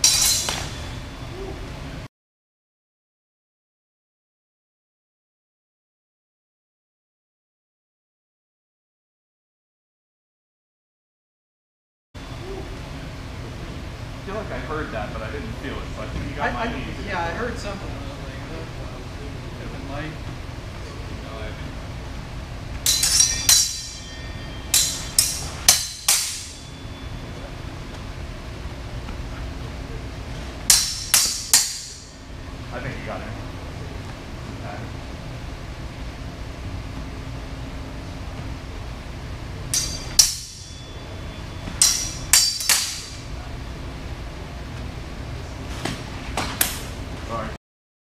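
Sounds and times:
sabres clashing: 0.0 - 1.0, 22.8 - 26.8, 30.6 - 32.2, 39.7 - 41.0, 41.6 - 43.2.

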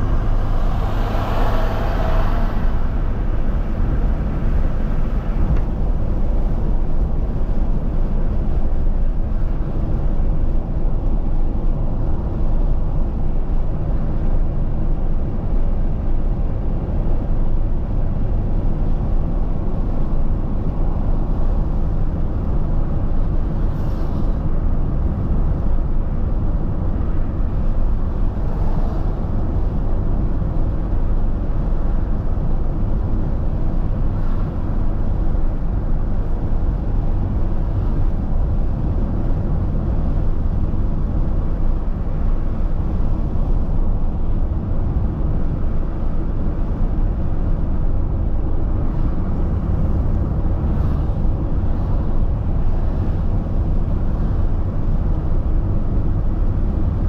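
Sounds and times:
car road and engine noise: 0.0 - 57.0.

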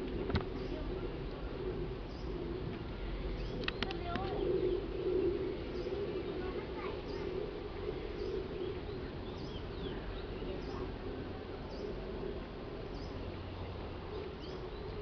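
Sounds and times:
low steady hum: 0.0 - 15.0
bird chirping: 3.2 - 11.0, 12.8 - 15.0.

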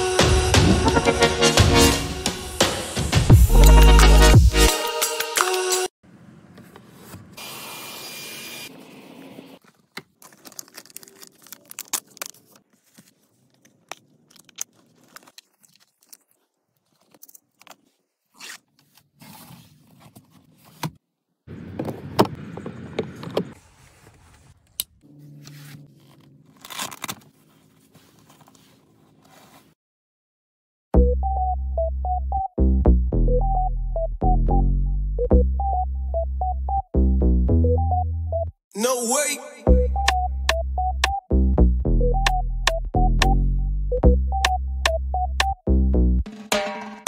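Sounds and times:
plastic and fabric rubbing: 9.6 - 21.1, 23.4 - 29.8.

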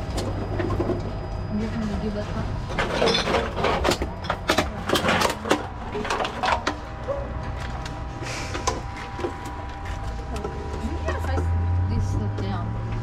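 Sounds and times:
vending machine humming: 0.0 - 13.0
cans and bottles clinking: 2.7 - 6.9.

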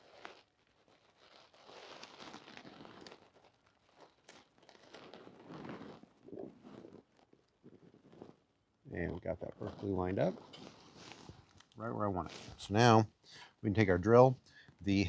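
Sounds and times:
paper rustling and crinkling: 0.0 - 6.0.

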